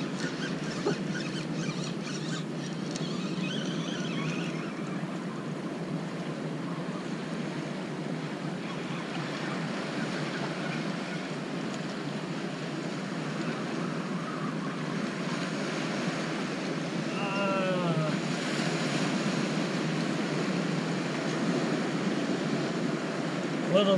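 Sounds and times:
ocean surf washing over rocks: 5.0 - 23.9.

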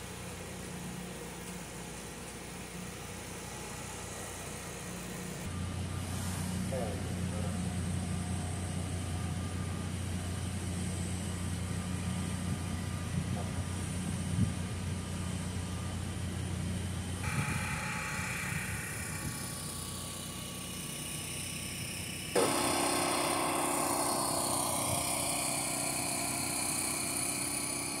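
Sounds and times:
engine hum: 0.0 - 28.0.

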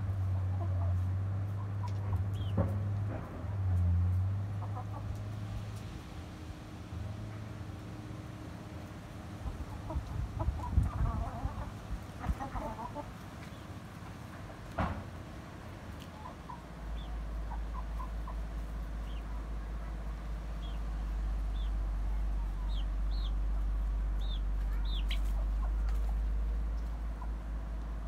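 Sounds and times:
hens clucking softly: 0.3 - 2.5, 4.4 - 5.4, 9.4 - 14.7, 15.9 - 28.0
steady low rumble: 15.6 - 28.0.

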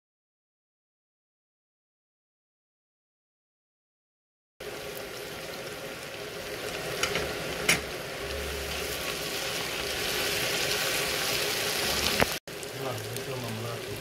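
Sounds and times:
onions sizzling in a pan: 4.6 - 14.0.

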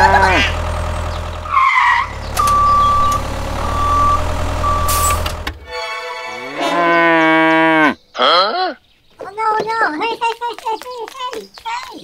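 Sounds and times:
vehicle engine rumbling: 0.0 - 5.7
reversing alarm beeps: 2.4 - 5.2
cow mooing: 6.4 - 8.6.

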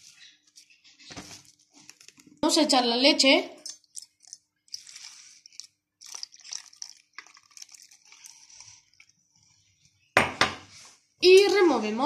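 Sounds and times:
milk pouring into bowl: 3.9 - 9.4.

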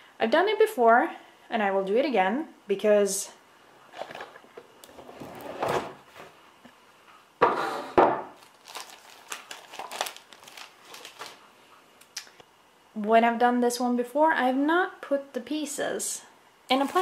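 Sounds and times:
plastic bag and paper crinkling: 8.4 - 11.5, 16.7 - 17.0.

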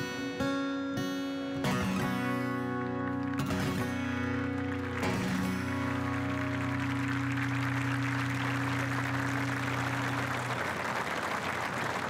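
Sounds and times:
crowd applause: 2.4 - 12.0.

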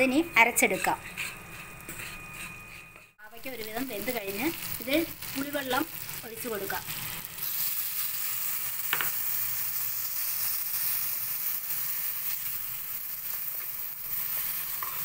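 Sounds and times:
wooden spatula stirring: 0.5 - 3.8
food sizzling in a pan: 3.2 - 15.0.

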